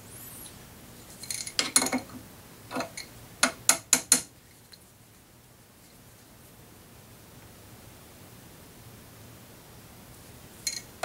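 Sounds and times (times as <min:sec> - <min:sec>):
wrench clinking against metal: 0:10.7 - 0:10.9.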